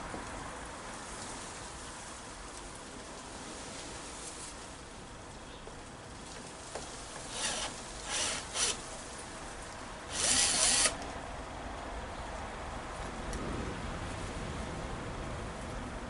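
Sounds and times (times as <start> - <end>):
cordless drill driving screws: 7.3 - 8.9, 10.1 - 11.0.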